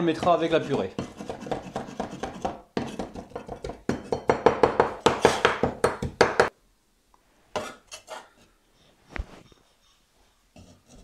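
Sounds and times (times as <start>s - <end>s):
knife chopping on wooden board: 0.2s - 6.5s.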